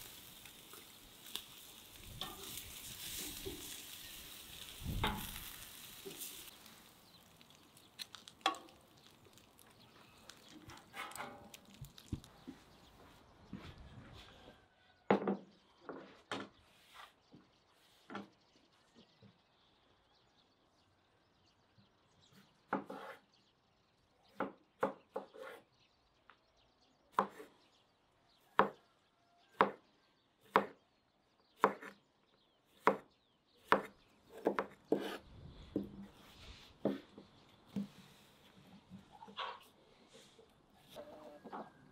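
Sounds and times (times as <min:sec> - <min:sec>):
knife chopping on wooden board: 0:29.6 - 0:29.8, 0:32.8 - 0:35.2.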